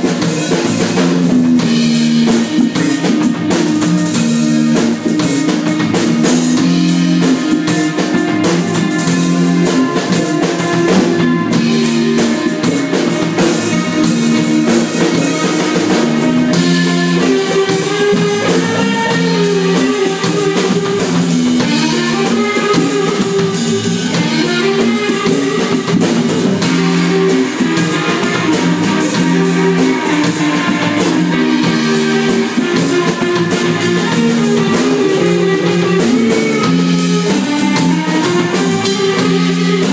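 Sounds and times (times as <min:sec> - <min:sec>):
rock band playing: 0:00.0 - 0:39.9.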